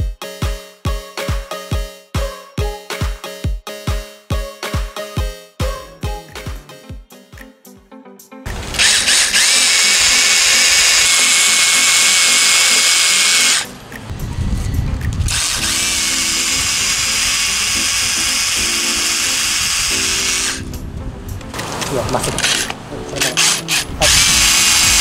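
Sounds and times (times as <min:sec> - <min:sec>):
rotary hammer drill spinning: 0:08.5 - 0:13.7, 0:15.3 - 0:20.6, 0:21.7 - 0:25.0.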